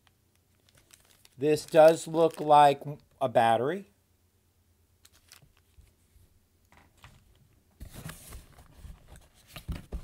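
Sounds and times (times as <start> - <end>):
packaging rustling and crinkling: 0.3 - 3.2, 5.0 - 6.0.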